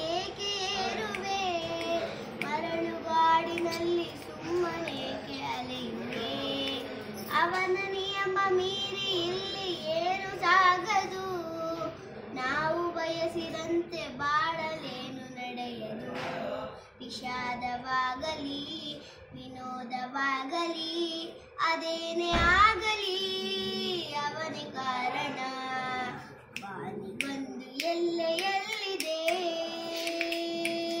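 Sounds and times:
girl singing: 0:00.0 - 0:16.4, 0:17.0 - 0:31.0
low thump: 0:22.3 - 0:22.8.

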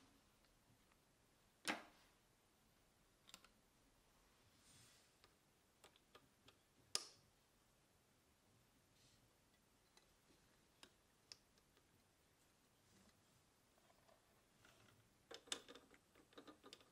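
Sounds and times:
small metal parts clicking: 0:14.6 - 0:16.9.

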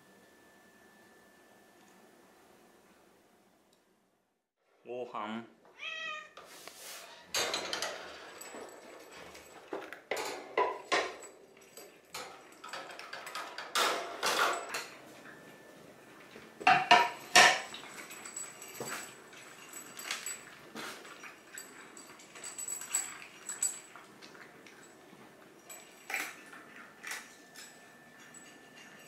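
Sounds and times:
cats meowing: 0:05.8 - 0:06.4
food bowl clattering: 0:09.6 - 0:11.3.

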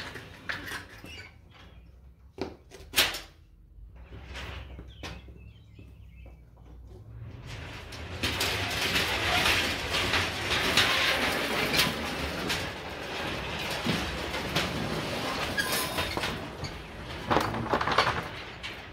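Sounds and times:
steel wheels rumbling on rail: 0:07.0 - 0:18.9.

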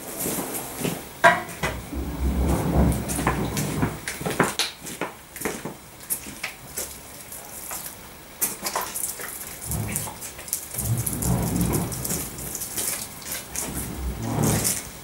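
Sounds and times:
water dripping on hard ground: 0:02.4 - 0:15.0.

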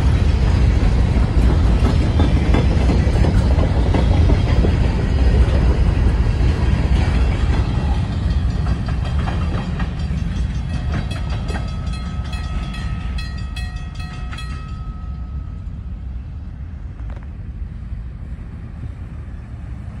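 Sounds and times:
freight train wheels rumbling: 0:00.0 - 0:20.0
clicks from train wheels: 0:01.3 - 0:15.3
metallic ringing from wheels: 0:07.7 - 0:15.9.

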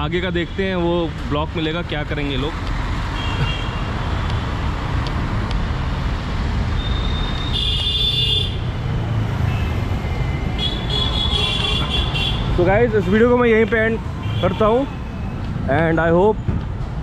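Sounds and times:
traffic rumble: 0:00.0 - 0:17.0
vehicle horns: 0:06.8 - 0:08.6, 0:09.4 - 0:13.3, 0:14.2 - 0:15.4.

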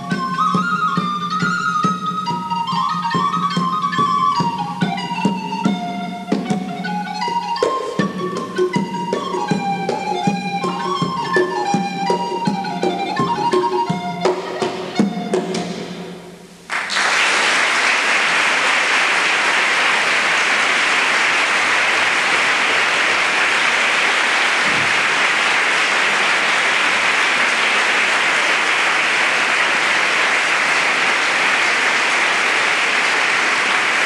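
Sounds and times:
audience applauding: 0:16.7 - 0:34.0.

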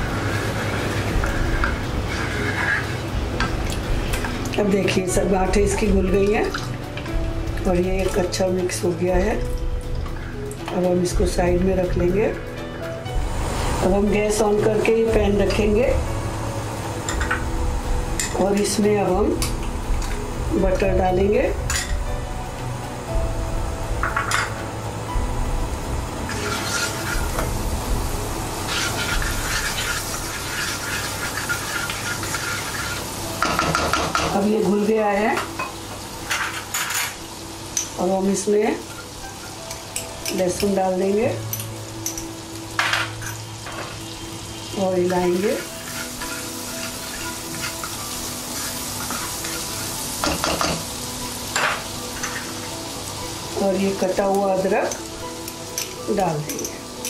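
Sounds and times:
butter sizzling in pan: 0:00.0 - 0:10.6, 0:23.0 - 0:57.0
spatula scraping pan: 0:00.1 - 0:03.0, 0:26.3 - 0:27.5, 0:28.6 - 0:34.2, 0:45.1 - 0:49.9.

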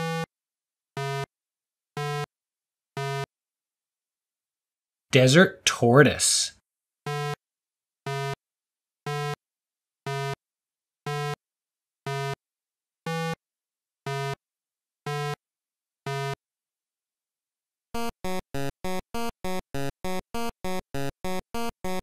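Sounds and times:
eight-bit synthesizer blips: 0:00.0 - 0:00.3, 0:01.0 - 0:01.3, 0:03.0 - 0:03.3, 0:08.1 - 0:08.4, 0:14.1 - 0:14.4, 0:16.1 - 0:16.4, 0:18.0 - 0:22.0.

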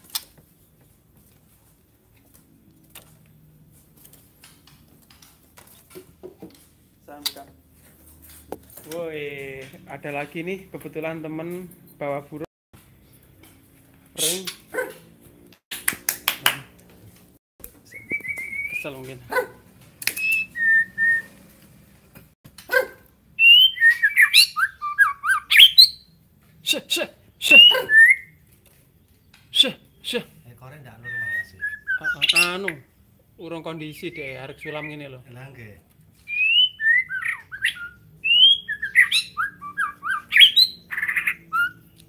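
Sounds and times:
bird whistling: 0:17.8 - 0:19.0, 0:20.1 - 0:21.4, 0:23.4 - 0:26.2, 0:27.4 - 0:28.4, 0:31.0 - 0:32.9, 0:33.9 - 0:35.0, 0:36.3 - 0:42.0.

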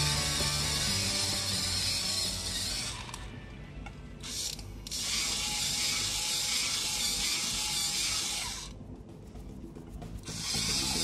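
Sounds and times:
toy drill whirring: 0:00.3 - 0:03.3, 0:04.2 - 0:08.8.

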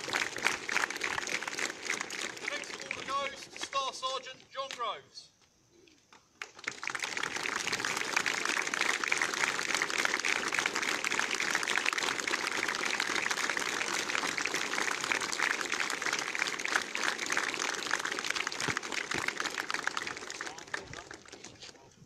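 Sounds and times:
crowd applauding: 0:00.0 - 0:03.5, 0:06.4 - 0:21.8.

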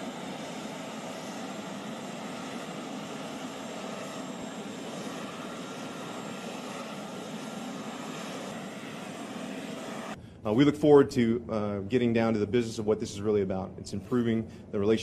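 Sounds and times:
aircraft engine rushing: 0:00.0 - 0:11.5
faint high whine: 0:00.0 - 0:15.0.

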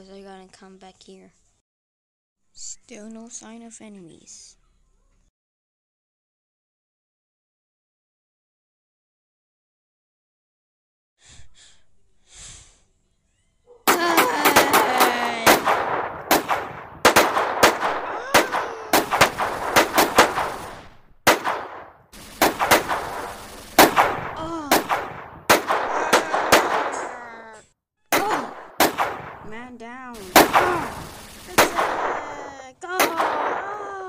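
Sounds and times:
machine gun fire: 0:13.9 - 0:27.2, 0:28.1 - 0:33.7.

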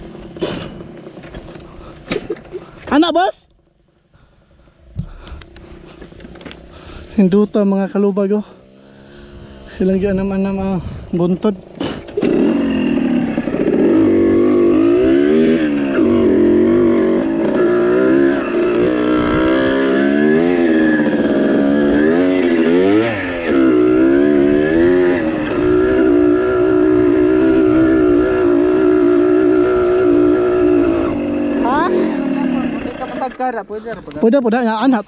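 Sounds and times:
dirt bike engine revving: 0:05.6 - 0:33.6.

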